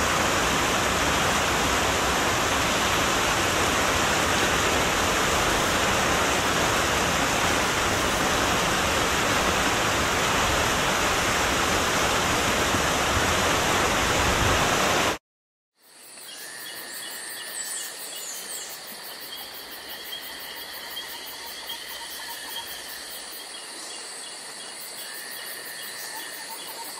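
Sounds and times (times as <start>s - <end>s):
insects chirping in trills: 15.8s - 26.9s.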